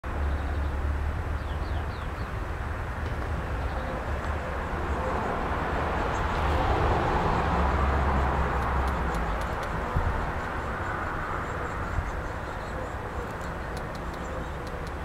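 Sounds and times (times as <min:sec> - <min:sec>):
small bird chirping: 0:08.5 - 0:15.0.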